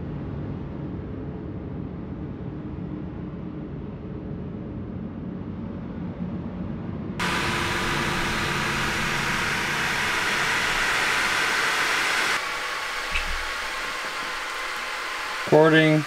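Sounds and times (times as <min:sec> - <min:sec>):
faint steady hum: 0:07.2 - 0:16.0
loud even hiss: 0:07.2 - 0:16.0.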